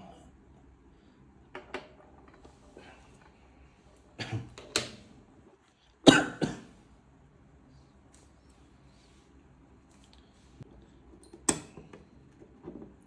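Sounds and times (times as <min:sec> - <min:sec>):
man coughing: 0:06.1 - 0:06.7.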